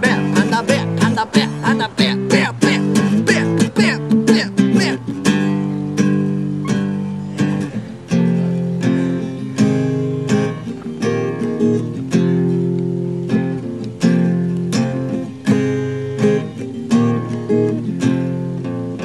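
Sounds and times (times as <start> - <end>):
acoustic guitar strumming chords: 0.0 - 19.0.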